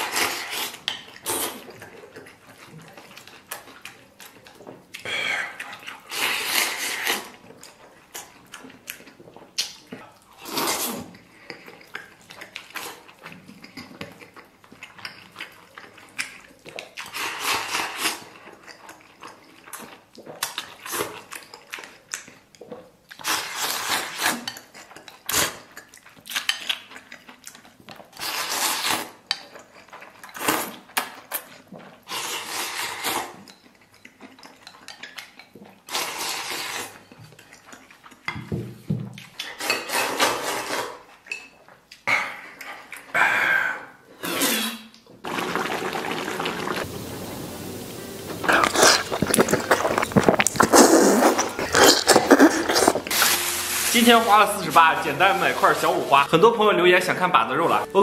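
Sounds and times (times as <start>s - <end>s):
eating and slurping: 0.0s - 58.0s
chopsticks scraping ceramic bowl: 48.3s - 56.3s.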